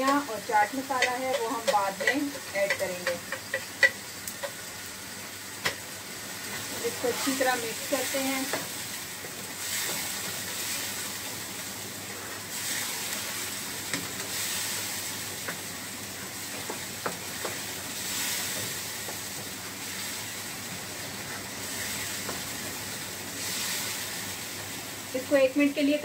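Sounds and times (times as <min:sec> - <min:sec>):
spatula clicking against pan: 0:00.0 - 0:04.6
food sizzling in a frying pan: 0:00.0 - 0:26.0.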